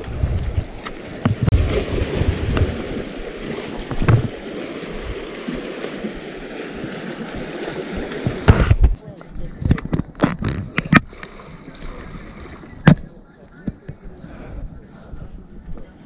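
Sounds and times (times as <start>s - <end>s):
wind buffeting microphone: 0.0s - 5.4s, 11.9s - 16.0s.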